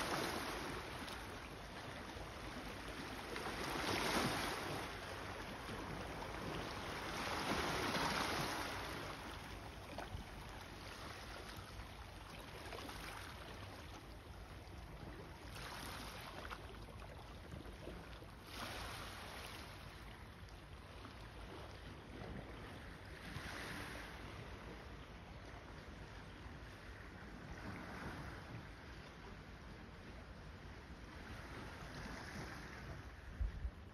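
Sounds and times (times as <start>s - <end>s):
sea waves washing over pebbles: 0.0s - 1.3s.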